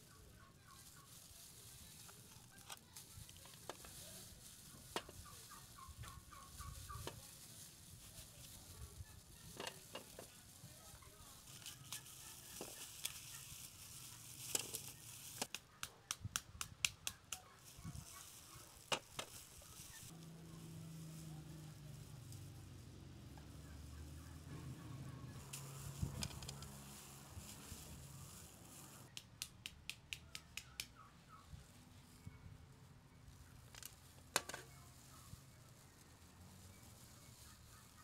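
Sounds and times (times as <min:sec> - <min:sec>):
poultry rattling calls: 0:05.0 - 0:07.4, 0:08.7 - 0:10.1, 0:11.0 - 0:15.5.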